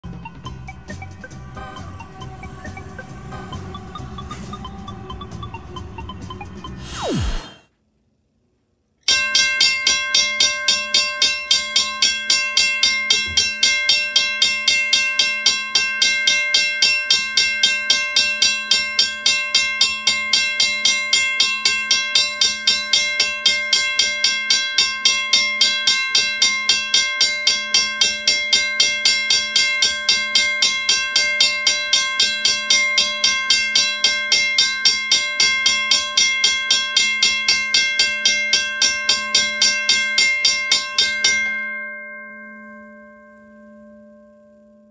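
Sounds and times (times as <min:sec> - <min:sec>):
railroad crossing bell ringing: 0:09.1 - 0:44.9.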